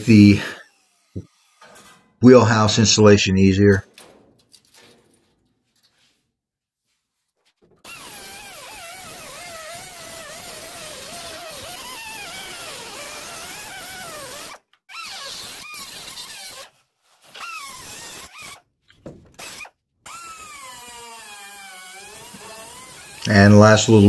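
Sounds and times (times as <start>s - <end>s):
cut-off wheel slicing steel: 0.0s - 2.2s, 7.8s - 18.6s, 19.4s - 23.5s.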